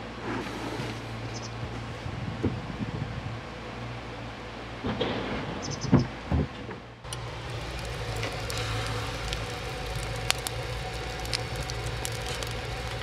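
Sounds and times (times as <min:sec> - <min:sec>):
low rushing fire draught: 0:00.0 - 0:04.2, 0:07.0 - 0:13.0
fire crackling and popping: 0:07.0 - 0:13.0.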